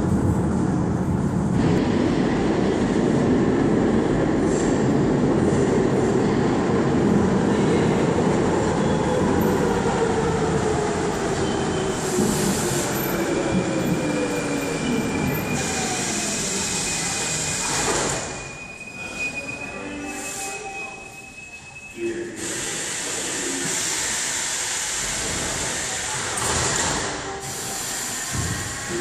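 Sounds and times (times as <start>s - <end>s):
metro train braking: 1.6s - 29.0s
high brake squeal: 11.4s - 23.1s
air brake hiss: 22.4s - 26.2s, 27.4s - 29.0s.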